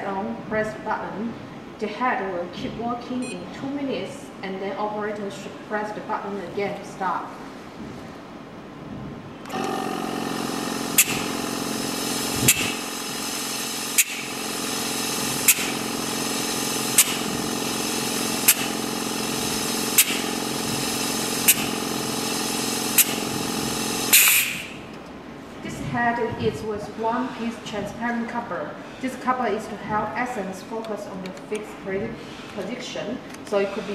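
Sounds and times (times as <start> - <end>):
facial machine motor hum: 9.4 - 24.9
short sharp pulses: 22.9 - 24.8.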